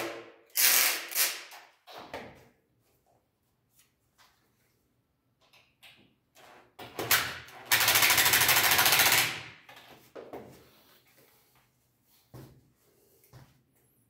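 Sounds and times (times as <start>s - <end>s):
drill driving a screw: 0.5s - 1.4s.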